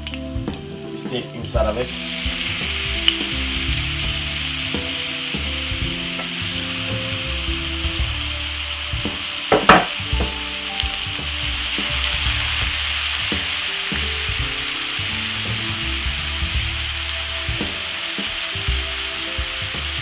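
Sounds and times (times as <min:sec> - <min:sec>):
meat sizzling in hot oil: 0:00.0 - 0:20.0.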